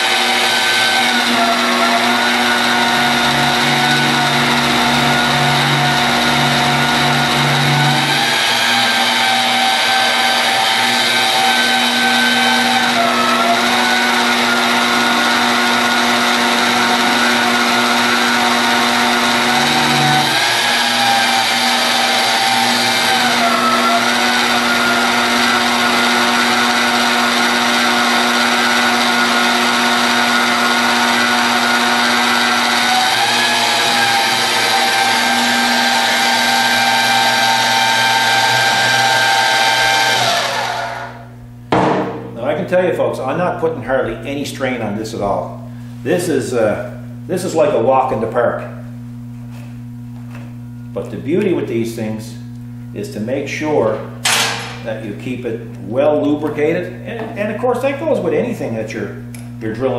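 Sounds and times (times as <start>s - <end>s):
magnetic drill motor whining: 0.0s - 41.3s.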